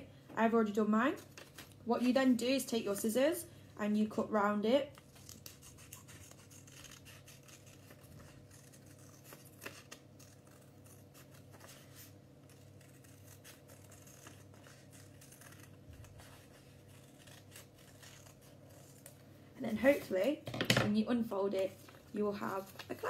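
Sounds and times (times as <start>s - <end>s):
scissors snipping paper: 4.8s - 19.2s.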